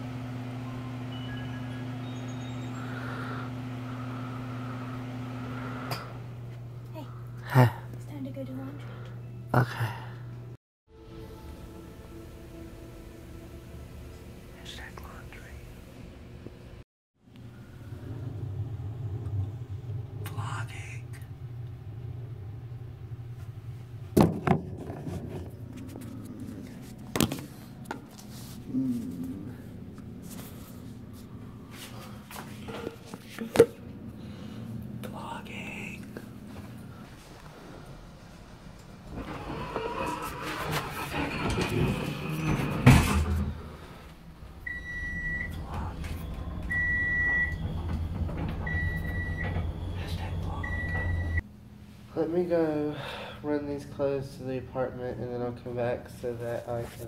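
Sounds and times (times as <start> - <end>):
steady low hum: 0.0 - 39.4
elevator beeping: 0.6 - 3.5, 39.1 - 43.2, 44.6 - 51.4.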